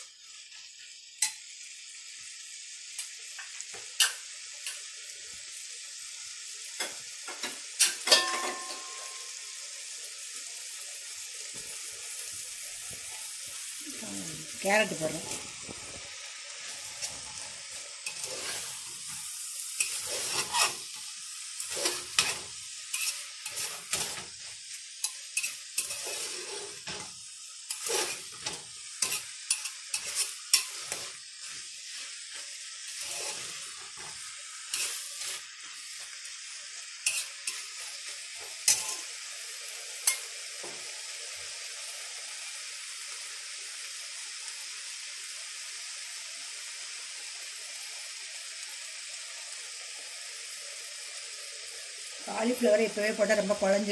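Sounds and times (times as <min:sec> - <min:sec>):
vegetables sizzling in a pot: 0:00.0 - 0:53.9
metal spoon scraping pot: 0:19.8 - 0:20.9, 0:21.6 - 0:24.2, 0:25.0 - 0:27.1, 0:27.7 - 0:31.2.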